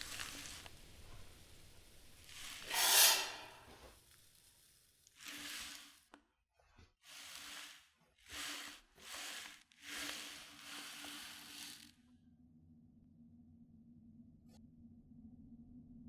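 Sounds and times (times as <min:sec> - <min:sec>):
soft hissing surges: 0:01.9 - 0:03.8.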